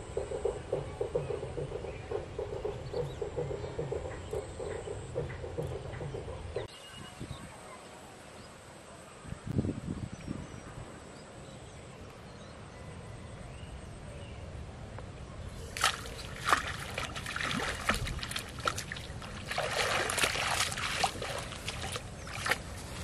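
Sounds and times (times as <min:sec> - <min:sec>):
fish splashing in water: 0:15.7 - 0:23.0.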